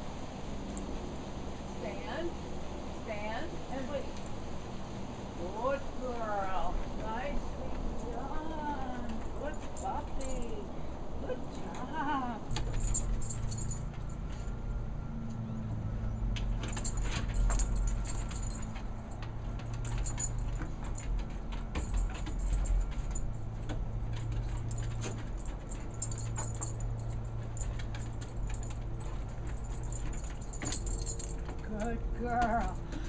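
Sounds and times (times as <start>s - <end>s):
steady low hum: 0.0s - 33.0s
dog collar tags jingling: 8.4s - 15.1s, 16.1s - 33.0s.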